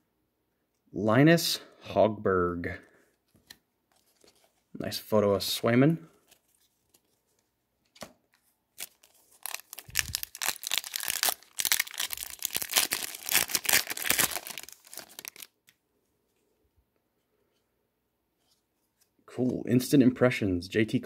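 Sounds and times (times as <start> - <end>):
foil wrapper tearing and crinkling: 8.8 - 15.6.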